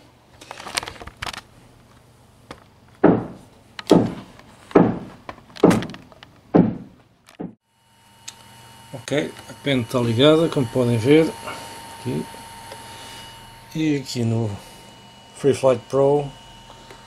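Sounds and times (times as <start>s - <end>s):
heavy booming thuds: 6.6s - 7.6s.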